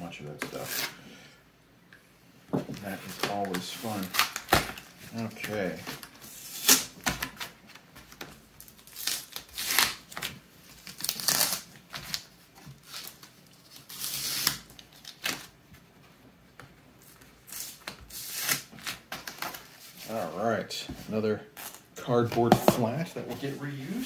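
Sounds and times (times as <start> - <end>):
cardboard rustling and scraping: 22.3 - 24.0.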